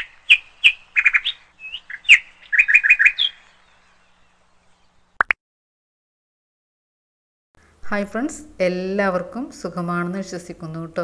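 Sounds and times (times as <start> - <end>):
small bird chirping: 0.0 - 5.2.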